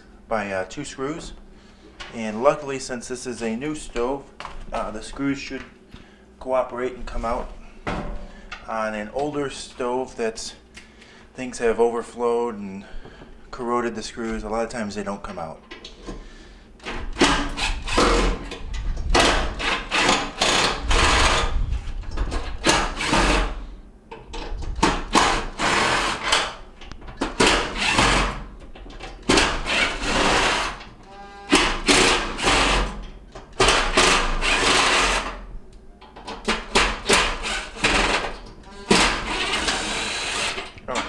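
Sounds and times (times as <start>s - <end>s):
cordless drill running: 19.2s - 21.5s, 22.7s - 23.6s, 25.1s - 26.4s, 27.4s - 28.4s, 29.3s - 32.9s, 33.6s - 35.4s, 36.7s - 40.7s.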